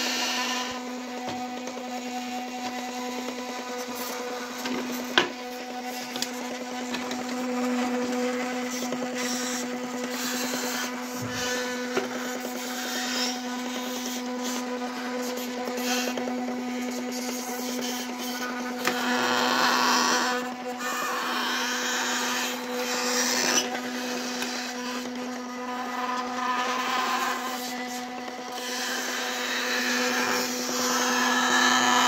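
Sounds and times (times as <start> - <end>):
electric motor humming: 0.0 - 32.0.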